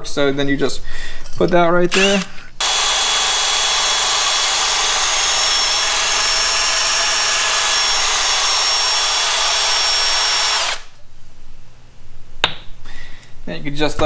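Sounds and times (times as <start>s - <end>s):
power drill grinding a valve: 1.9s - 11.0s.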